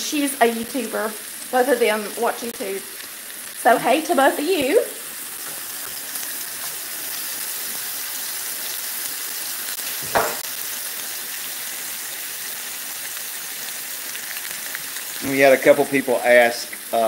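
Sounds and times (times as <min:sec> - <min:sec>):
meatballs sizzling in a skillet: 0:00.0 - 0:17.0
short knock: 0:10.0 - 0:10.4.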